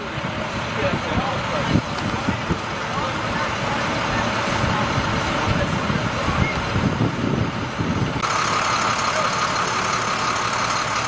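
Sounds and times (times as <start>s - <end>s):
vehicle engines idling: 0.0s - 11.0s
wind rumbling on microphone: 0.1s - 8.3s.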